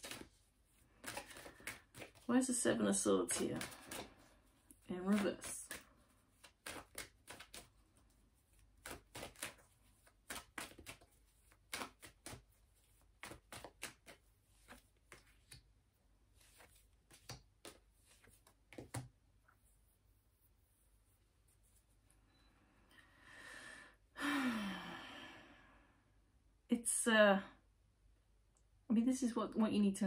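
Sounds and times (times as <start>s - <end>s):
cards shuffling: 0.0s - 19.2s.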